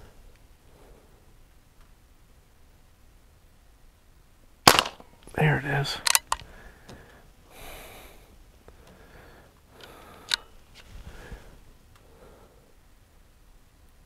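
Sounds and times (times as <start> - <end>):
pellet pistol bolt clicks: 4.7 - 5.1, 6.0 - 6.5, 9.8 - 10.5.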